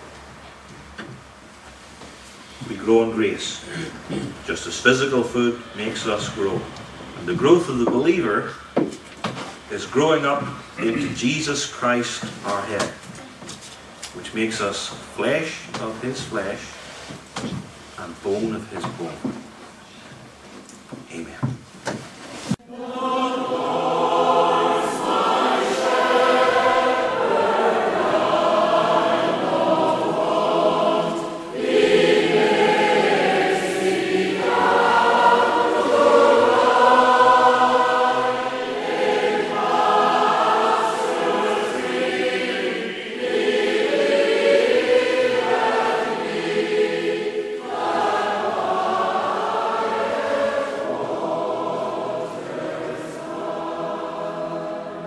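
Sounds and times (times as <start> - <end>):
choir singing: 22.6 - 55.0.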